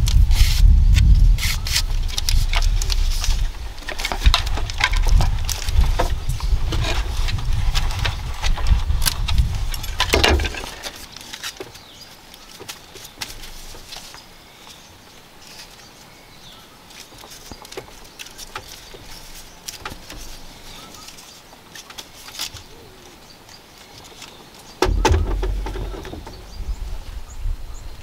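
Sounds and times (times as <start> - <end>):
bamboo basket clicking and creaking: 0.0 - 26.7
basket thumping on bamboo floor: 24.8 - 26.5.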